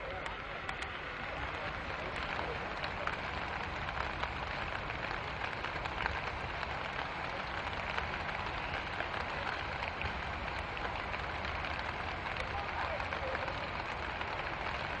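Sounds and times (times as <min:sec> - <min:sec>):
rain falling: 0:00.1 - 0:15.0.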